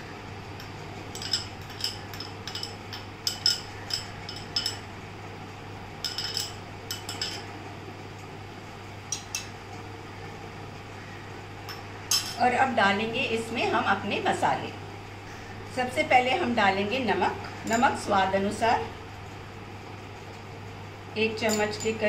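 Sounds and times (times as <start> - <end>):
spoon clinking against glass bowl: 1.2 - 4.8.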